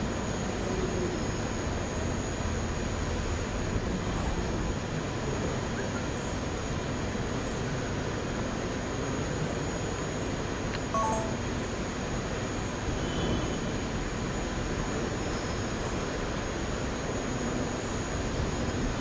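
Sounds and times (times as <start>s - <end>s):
large hall room noise: 11.0s - 11.6s.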